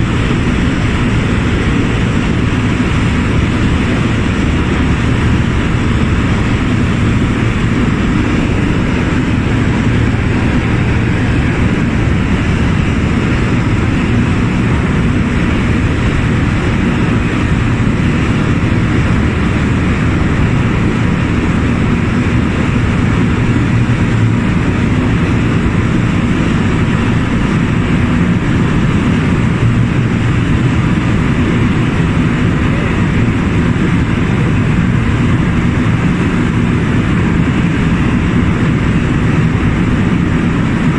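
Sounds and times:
boat engine running: 0.0 - 40.9
water rushing from wake: 0.0 - 40.9.

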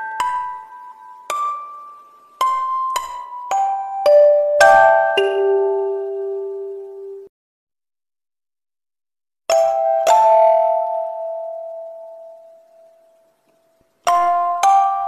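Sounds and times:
two-note bell chime: 0.0 - 7.3.

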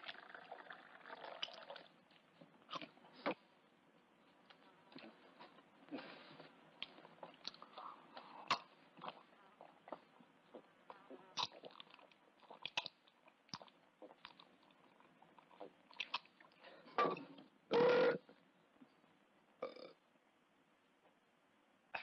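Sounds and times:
man chewing: 6.8 - 16.6
man gulping: 19.6 - 20.0.

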